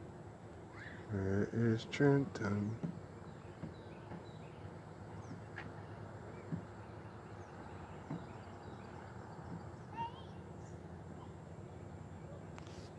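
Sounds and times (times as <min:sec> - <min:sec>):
faint bird chirps: 0:00.7 - 0:01.2, 0:03.2 - 0:12.9.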